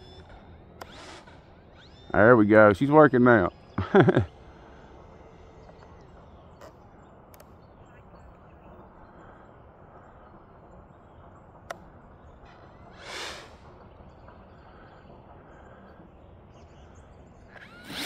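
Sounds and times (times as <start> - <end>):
brief whoosh: 12.9 - 13.6.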